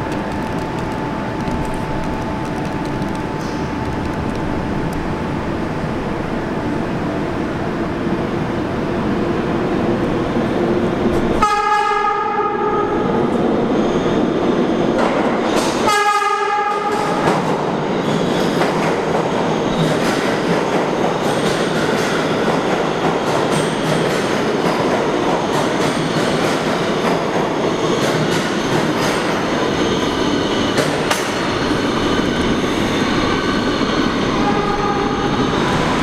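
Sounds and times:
train wheels rumbling on rails: 0:00.0 - 0:36.0
subway train horn blasts: 0:11.3 - 0:13.4, 0:15.6 - 0:17.5, 0:34.2 - 0:36.0.

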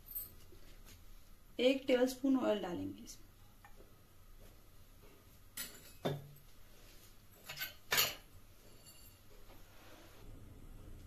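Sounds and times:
utensils clinking against metal: 0:05.6 - 0:06.3, 0:07.4 - 0:09.3.

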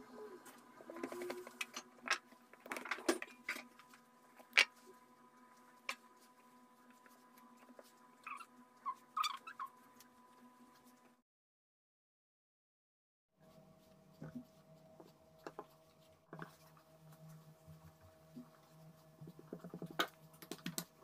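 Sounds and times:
faint steady hum: 0:00.0 - 0:11.2.

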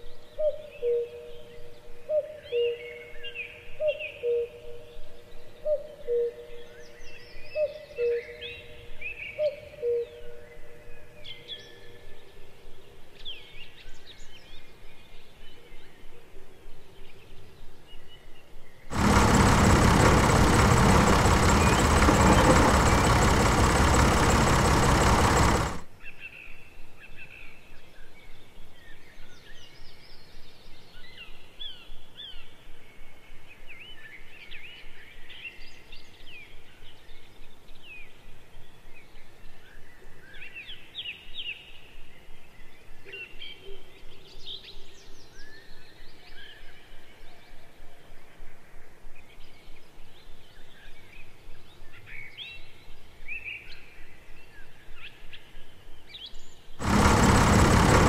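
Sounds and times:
birds chirping: 0:18.9 - 0:25.8.

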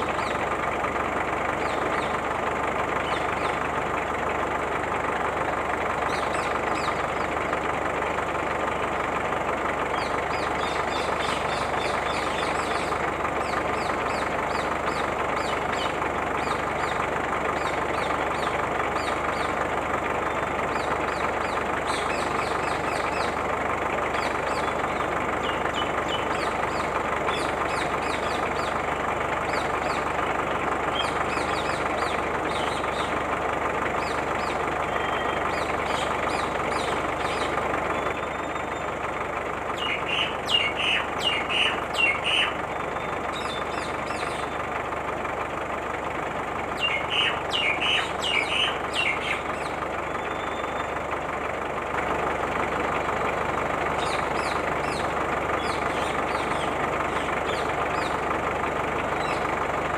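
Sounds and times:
birds chirping: 0:00.0 - 0:04.1, 0:05.1 - 0:08.3, 0:09.6 - 0:45.0, 0:46.6 - 0:51.4, 0:52.9 - 0:59.9.

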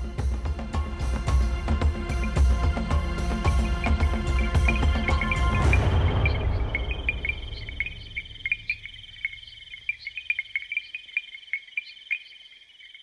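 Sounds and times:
background music: 0:00.0 - 0:09.0
crickets trilling: 0:02.1 - 0:13.0.

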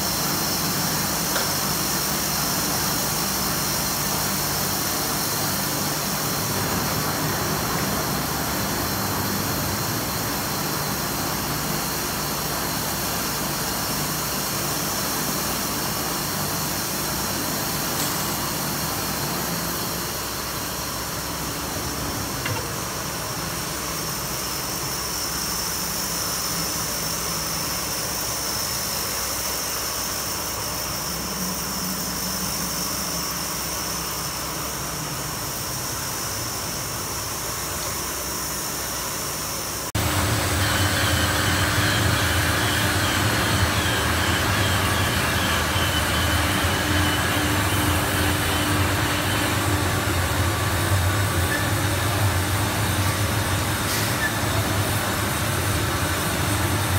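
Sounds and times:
foam-cutting machine humming: 0:38.7 - 0:56.9.

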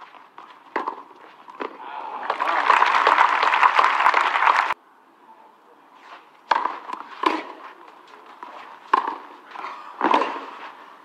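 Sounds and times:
crowd noise: 0:01.7 - 0:06.1.

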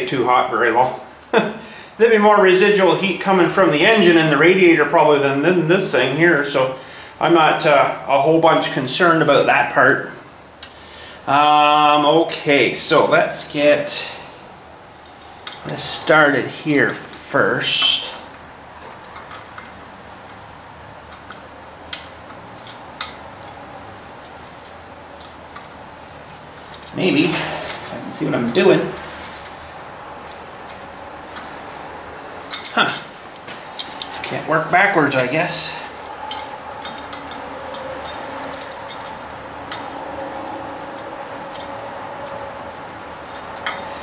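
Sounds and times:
low steady background noise: 0:00.0 - 0:44.0
metal clicks of bolt and nuts: 0:17.8 - 0:20.4, 0:21.1 - 0:23.6, 0:28.6 - 0:31.6, 0:32.2 - 0:34.4, 0:36.0 - 0:44.0.

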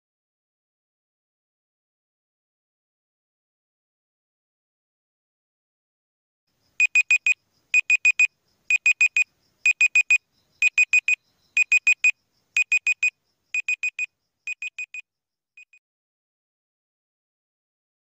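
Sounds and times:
high electronic beeps: 0:06.8 - 0:15.0.

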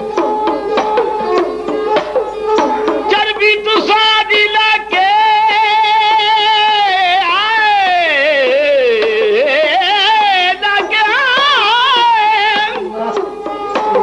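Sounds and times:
bowed string melody: 0:00.0 - 0:07.1, 0:07.8 - 0:14.0
hand drum strokes: 0:10.8 - 0:14.0.

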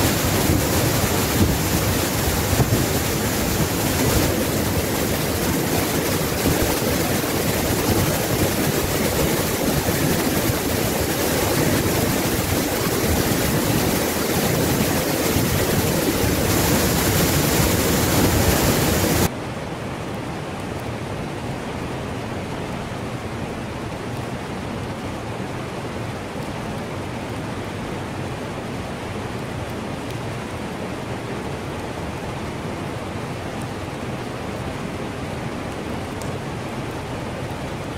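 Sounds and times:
waterfall rushing: 0:00.0 - 0:19.3.

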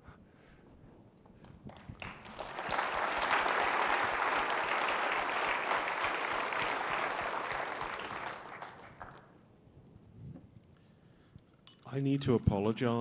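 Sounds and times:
audience applauding: 0:01.7 - 0:09.4.

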